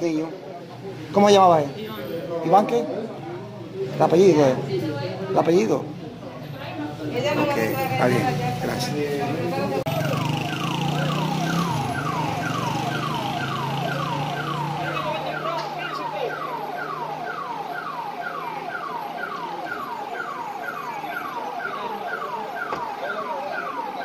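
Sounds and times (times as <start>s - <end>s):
electronic siren falling tone: 9.9s - 24.0s.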